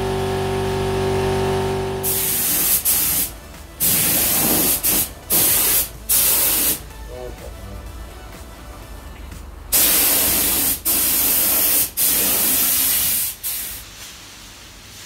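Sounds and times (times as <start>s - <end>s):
paint spray gun hissing: 2.0s - 6.9s, 9.8s - 13.9s
steady hum with hiss: 2.0s - 15.0s.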